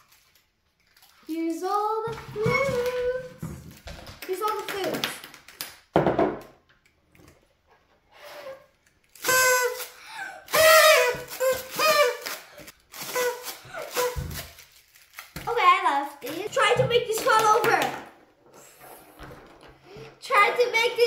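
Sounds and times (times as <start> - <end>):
toy horns tooting: 8.3 - 14.6.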